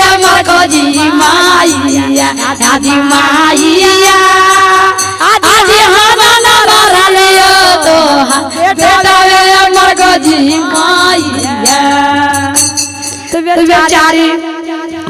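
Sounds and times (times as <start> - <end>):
woman singing into microphone: 0.0 - 15.0.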